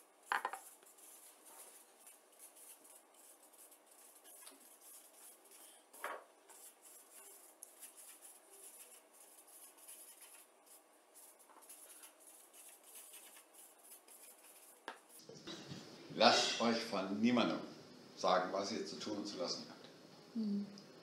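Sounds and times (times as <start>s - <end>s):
marker pen writing on paper: 0.3s - 15.2s.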